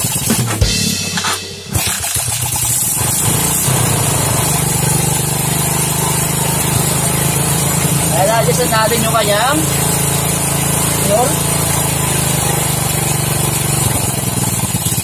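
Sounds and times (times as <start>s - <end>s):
motorcycle engine starting and idling: 0.0s - 15.0s.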